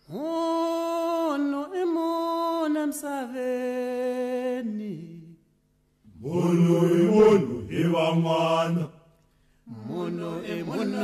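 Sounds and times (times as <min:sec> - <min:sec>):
person singing chant-like melody: 0:09.7 - 0:11.0.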